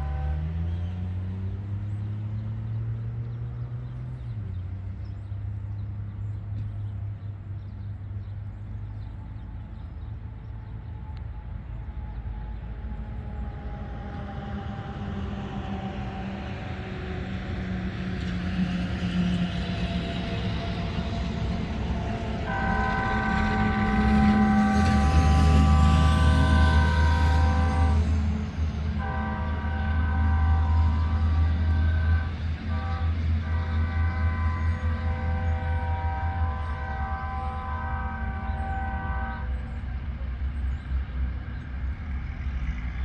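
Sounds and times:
train horn: 0:00.0 - 0:01.4, 0:09.1 - 0:41.7
locomotive engine drone: 0:00.0 - 0:43.0.

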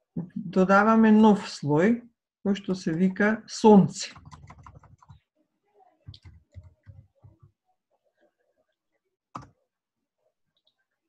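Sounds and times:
computer keyboard typing: 0:04.1 - 0:05.2, 0:06.1 - 0:07.4.

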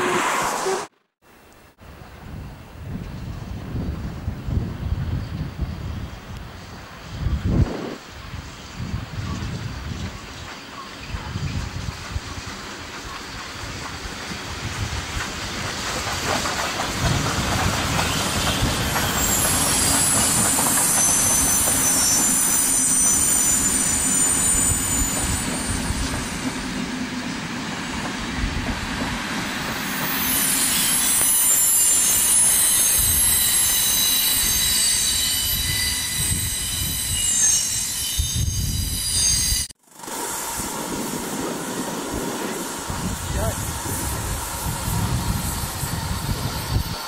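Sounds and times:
train wheels on track: 0:02.8 - 0:47.0
high-pitched wheel squeal: 0:18.0 - 0:26.5, 0:29.8 - 0:39.7.

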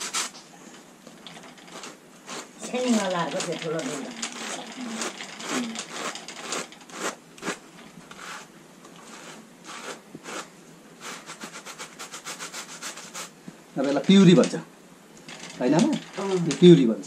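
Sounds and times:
hand carders scratching wool: 0:00.0 - 0:00.4, 0:01.3 - 0:14.4.

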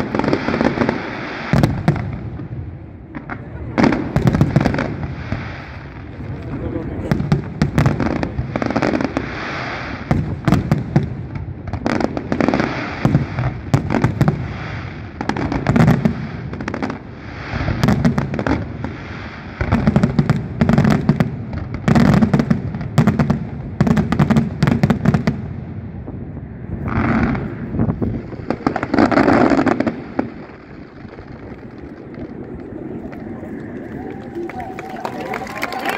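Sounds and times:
firework crackle: 0:00.0 - 0:35.9
firework shells booming: 0:26.8 - 0:33.9.

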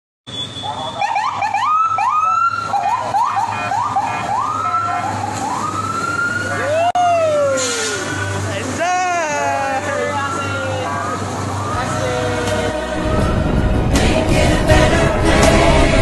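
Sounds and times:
police siren whooping and wailing: 0:00.6 - 0:08.2, 0:09.3 - 0:13.9
lower siren tone: 0:12.8 - 0:14.0.

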